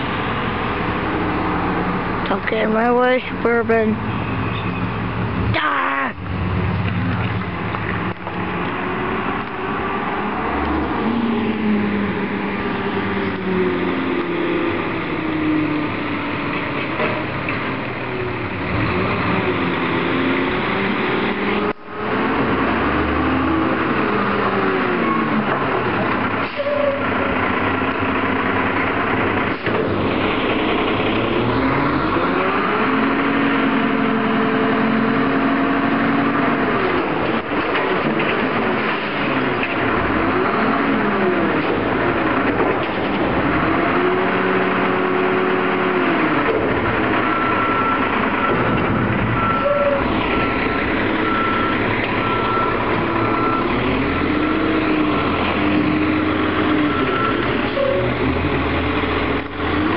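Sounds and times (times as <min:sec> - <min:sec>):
garbage truck engine revving: 0:06.4 - 0:59.9
reversing alarm beeping: 0:47.2 - 0:48.7, 0:49.3 - 0:54.6, 0:56.7 - 0:58.2.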